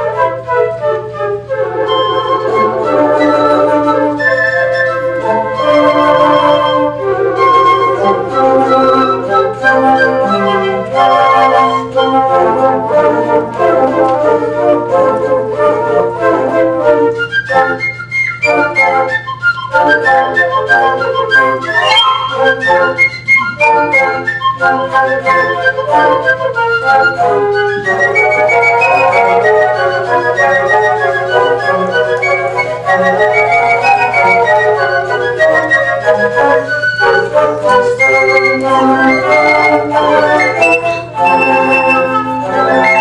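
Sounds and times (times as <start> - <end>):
flute choir playing: 0.0 - 43.0.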